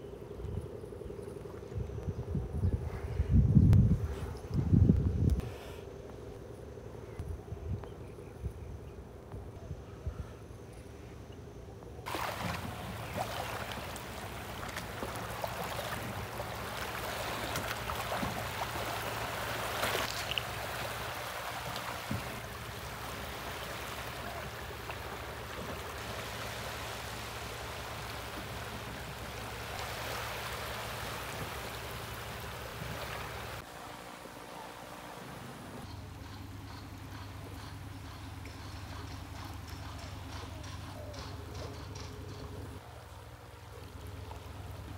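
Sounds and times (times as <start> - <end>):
running water: 12.0 - 35.8.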